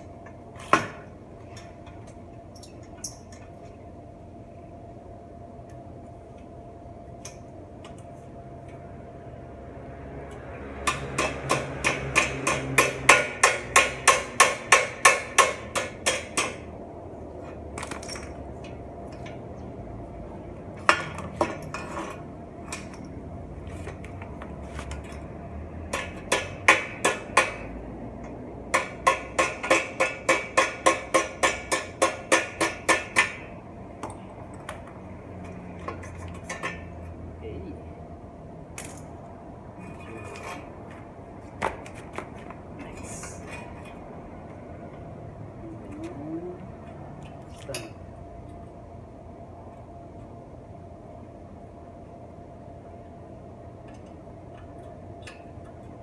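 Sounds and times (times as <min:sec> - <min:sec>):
hammer striking metal: 0:10.8 - 0:16.7, 0:25.9 - 0:27.8, 0:28.7 - 0:33.5.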